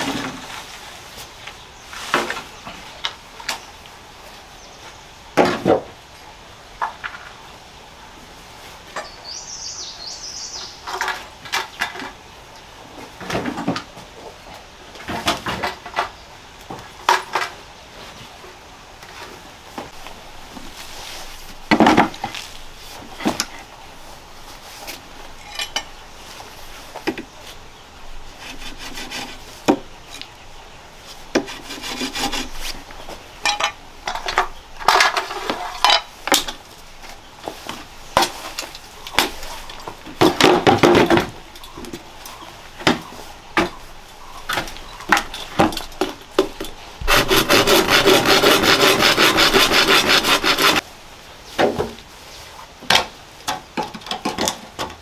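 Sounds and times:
wood knocking and scraping on wood: 21.6s - 23.7s, 28.4s - 30.3s, 31.3s - 43.8s, 44.4s - 50.8s.

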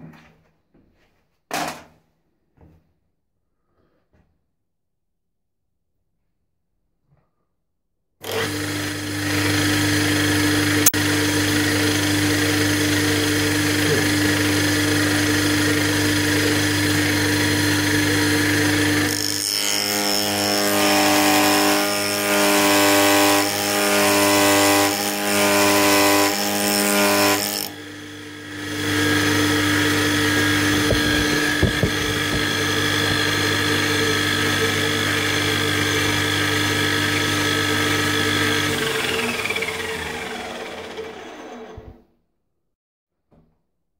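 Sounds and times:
end mill cutting chatter: 8.2s - 41.8s
milling machine spindle hum: 27.8s - 41.8s.

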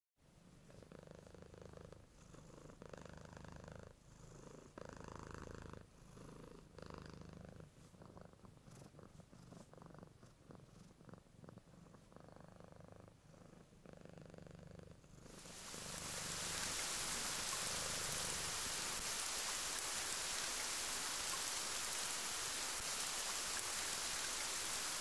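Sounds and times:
cat purring: 0.4s - 23.9s.

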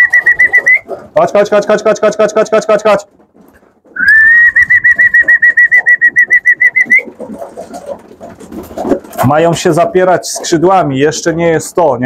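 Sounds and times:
person whistling warbling call: 0.0s - 0.9s, 4.0s - 7.1s
pigeons clicking and shuffling: 0.0s - 11.9s.

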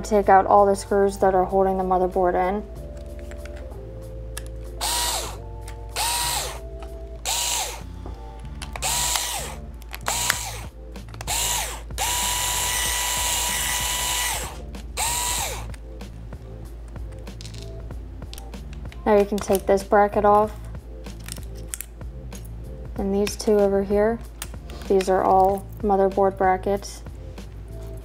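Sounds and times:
faint background music: 0.0s - 28.0s
electric screwdriver motor whining: 4.8s - 8.0s, 8.6s - 15.8s.

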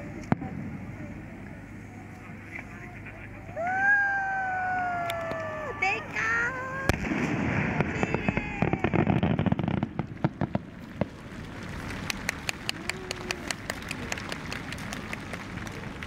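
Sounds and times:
firework rumble with cracks: 0.0s - 16.0s
firework sharp pops: 6.9s - 12.7s.

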